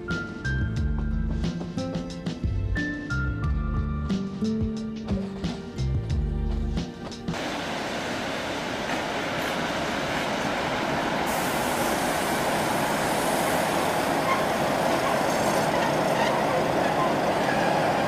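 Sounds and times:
train rolling on rails: 5.0 - 18.0
hiss: 7.4 - 15.8.

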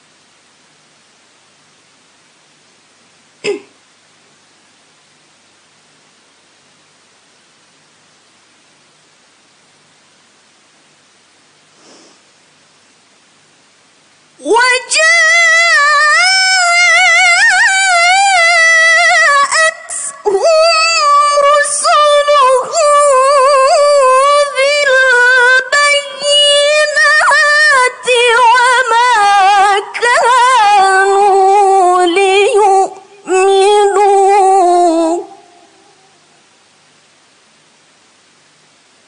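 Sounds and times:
woman reciting melodically: 14.4 - 36.0.

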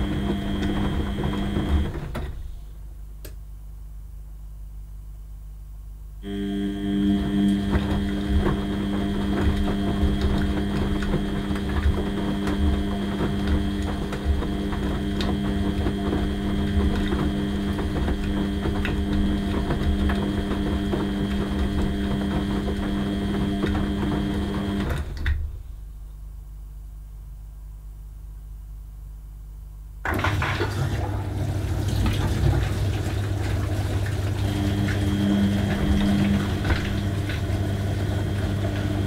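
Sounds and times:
washing machine drum turning: 0.0 - 2.5, 6.6 - 25.6, 30.0 - 39.0.

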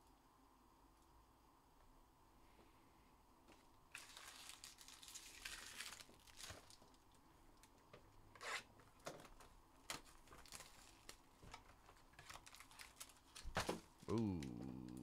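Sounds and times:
plastic packaging crinkling: 3.9 - 7.1, 9.9 - 13.8.

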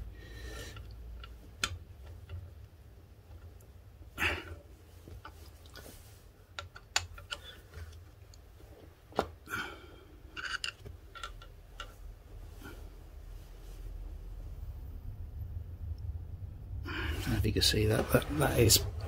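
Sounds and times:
metal parts clinking and scraping: 10.3 - 12.0.

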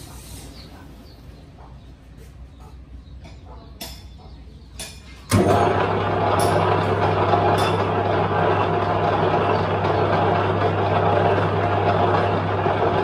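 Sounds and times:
metal lathe running: 5.3 - 13.0.

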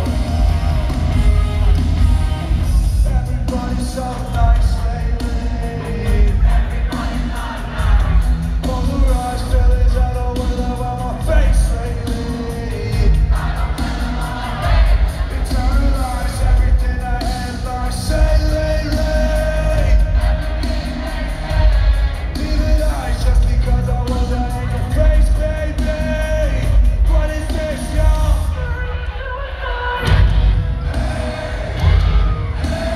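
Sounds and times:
live rock band playing: 0.0 - 29.0, 30.0 - 32.9
man singing: 2.6 - 14.2, 15.3 - 20.4, 22.3 - 30.3.

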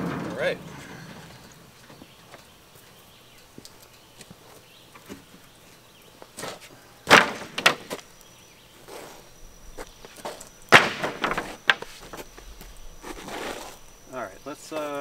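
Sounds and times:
wooden boards clattering: 0.0 - 2.2, 6.4 - 8.1, 9.8 - 13.8
boards rattling together: 7.1 - 8.0, 10.2 - 12.3.

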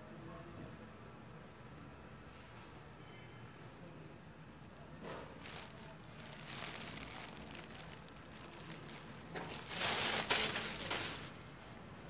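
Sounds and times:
plastic bag rustling and crinkling: 5.1 - 12.0.

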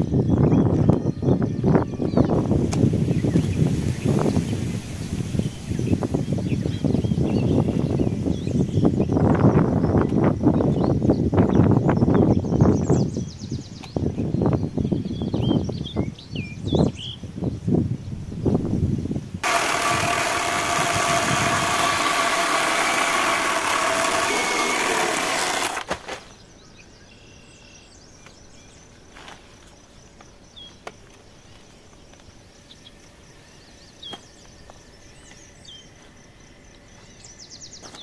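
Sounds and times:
electric chainsaw cutting log: 19.4 - 26.0.

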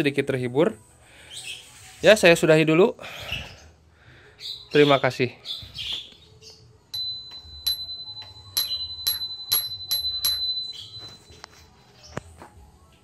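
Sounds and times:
bicycle bell ringing: 6.9 - 11.5.

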